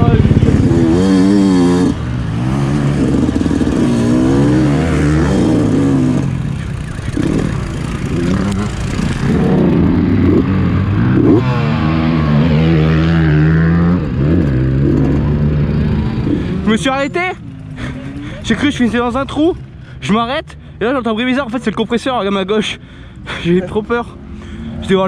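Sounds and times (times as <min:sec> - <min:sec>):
motocross bike engine revving: 0:00.0 - 0:19.7.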